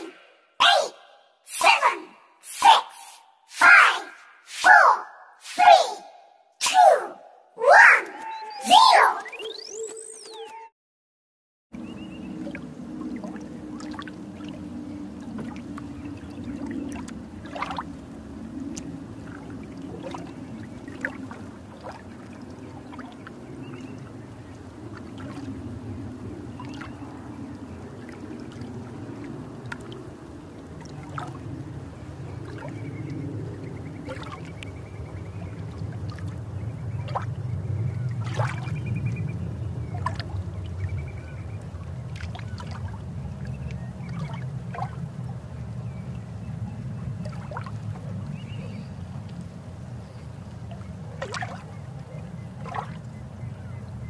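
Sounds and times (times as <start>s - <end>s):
underwater rush of water: 11.8s - 53.2s.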